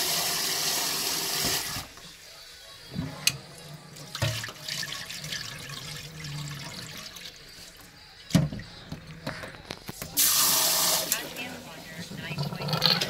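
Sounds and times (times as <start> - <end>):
rinse water pouring into sink: 0.0 - 2.0, 4.0 - 7.4, 10.2 - 11.4
water sloshing in a pot: 3.2 - 9.0.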